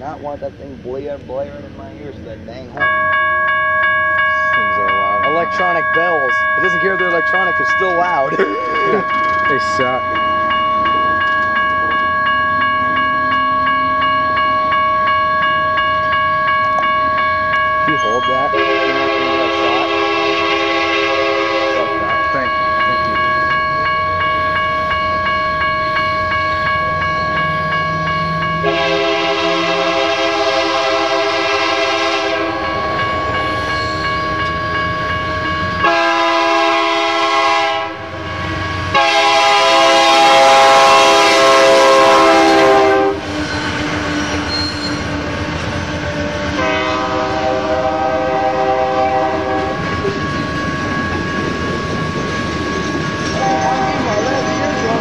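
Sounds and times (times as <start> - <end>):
crossing bells ringing: 0.0 - 55.0
train rumbling on rails: 0.0 - 55.0
train air horn: 18.1 - 23.0, 28.6 - 32.9, 35.8 - 38.0, 38.8 - 45.0, 46.5 - 49.9, 53.4 - 54.1.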